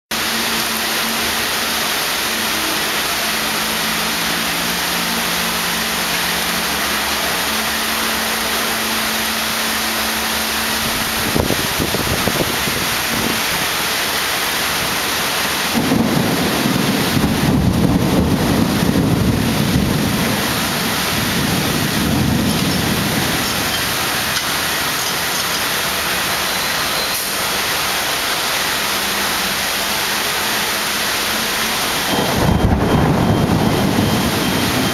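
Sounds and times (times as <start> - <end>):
steady rain: 0.1 - 34.9
low rumble of thunder: 15.7 - 24.1, 32.1 - 34.9.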